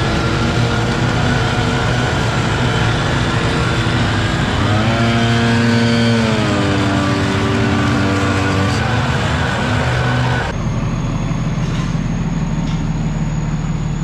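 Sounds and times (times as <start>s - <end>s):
gas leaf blowers: 0.0s - 14.0s
leaf vacuum engine running: 0.0s - 14.0s.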